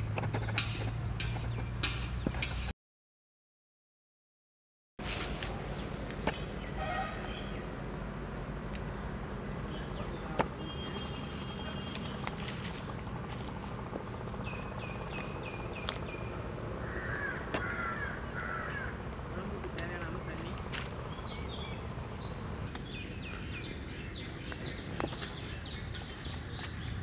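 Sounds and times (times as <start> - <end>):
birds chirping: 0.0 - 2.7, 5.0 - 27.0
harsh warbling bird calls: 9.0 - 26.6.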